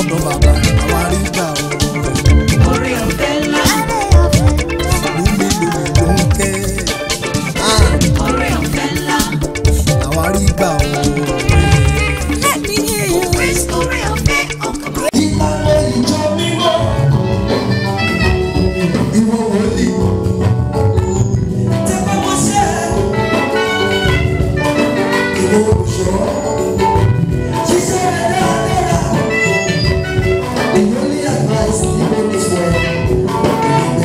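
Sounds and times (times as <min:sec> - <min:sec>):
man singing into microphone: 0:00.0 - 0:17.8, 0:18.4 - 0:20.4, 0:21.8 - 0:23.8, 0:25.2 - 0:34.0
amplified band music: 0:00.0 - 0:34.0.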